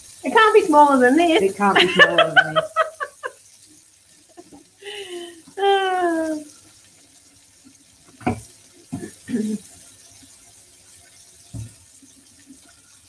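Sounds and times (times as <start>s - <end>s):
tap water running into sink: 0.0s - 13.0s
knocks and clunks in sink: 8.2s - 9.1s, 11.5s - 11.8s.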